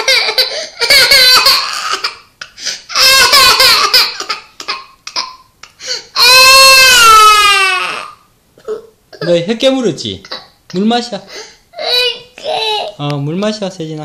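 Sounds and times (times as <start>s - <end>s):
toddler crying and wailing: 0.0s - 2.2s, 2.9s - 5.3s, 6.2s - 8.2s, 11.8s - 13.0s.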